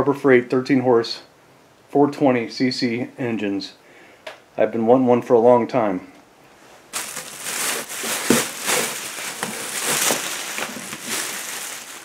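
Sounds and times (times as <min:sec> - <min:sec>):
plastic bag crinkling: 0:06.9 - 0:12.0.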